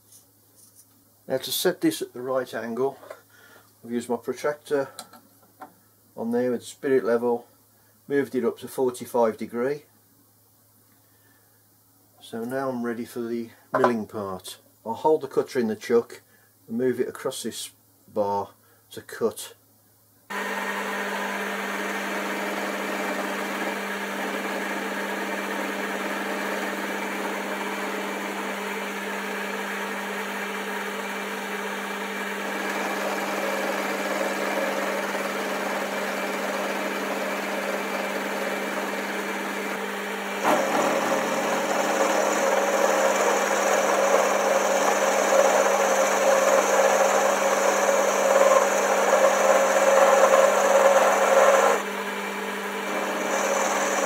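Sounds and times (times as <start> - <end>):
lathe machine hum: 20.3 - 54.0.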